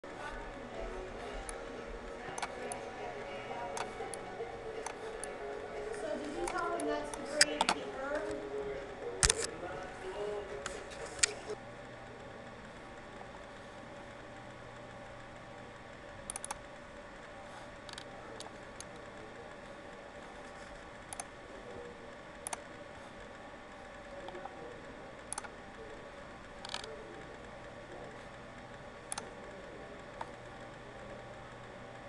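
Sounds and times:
faint background hum: 0.0 - 32.0
computer mouse clicking: 9.2 - 9.5, 16.2 - 16.6, 17.8 - 18.9, 21.1 - 21.3, 22.4 - 22.6, 25.3 - 25.5, 26.6 - 26.9, 29.1 - 29.3.

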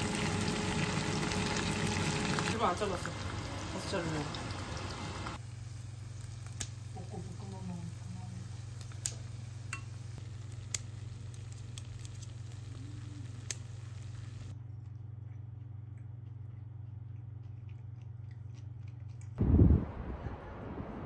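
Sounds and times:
low hum: 9.4 - 21.0.

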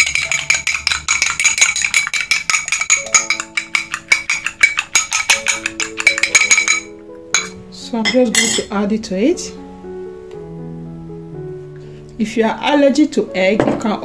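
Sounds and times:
fork beating egg in bowl: 0.0 - 7.5
background music: 0.0 - 14.0.

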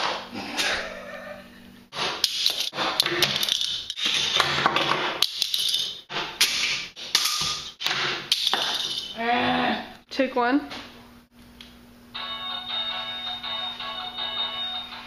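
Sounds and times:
small parts clattering and knocking: 2.2 - 6.1, 7.1 - 9.2.

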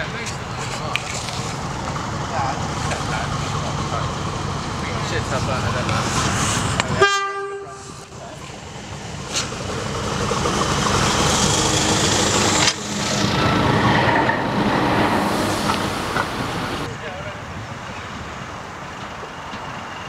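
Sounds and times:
diesel engine rumble: 0.0 - 7.0, 7.6 - 20.0
locomotive horn: 7.0 - 8.1
wheels clattering over rails: 8.1 - 16.9.

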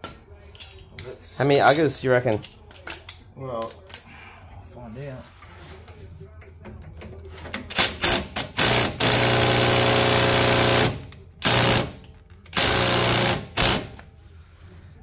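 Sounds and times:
impact wrench hammering: 7.7 - 12.0, 12.6 - 14.0.

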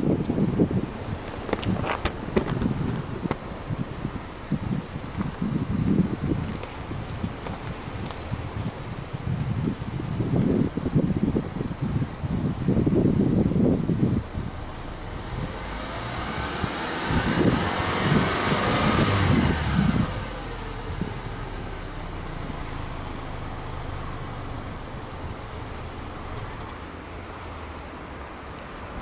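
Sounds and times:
car engine revving and idling: 13.0 - 26.9.

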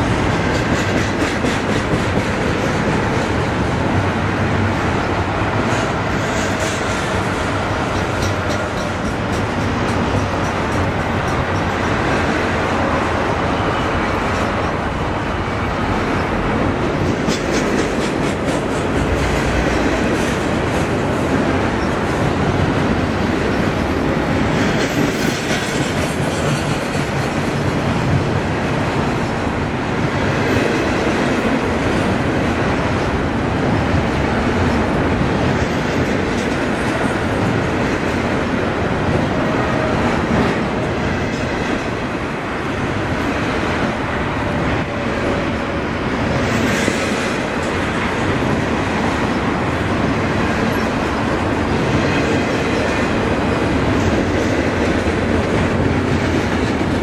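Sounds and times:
freight train rolling past: 0.0 - 57.0.

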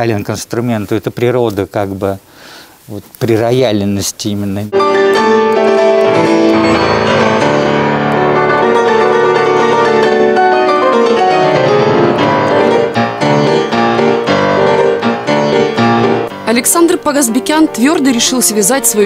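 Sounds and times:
grand piano playing: 4.7 - 19.0.

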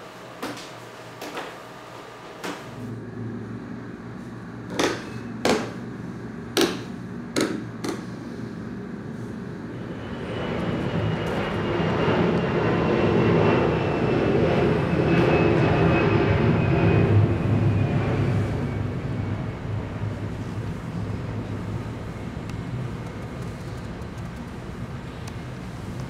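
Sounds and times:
low rumbling drone: 2.8 - 7.3, 8.0 - 25.9.

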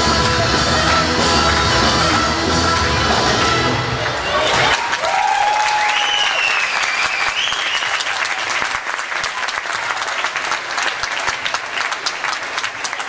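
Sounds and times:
audience applauding: 0.2 - 13.0.

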